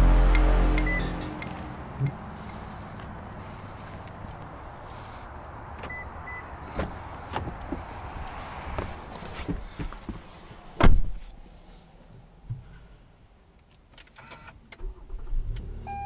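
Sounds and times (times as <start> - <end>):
short high beeps: 0.3 - 1.6.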